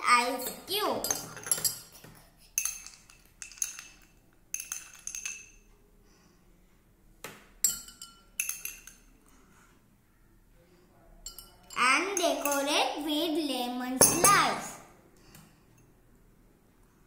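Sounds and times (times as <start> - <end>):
spoon clinking ice in glass: 2.6 - 5.6, 7.7 - 9.1.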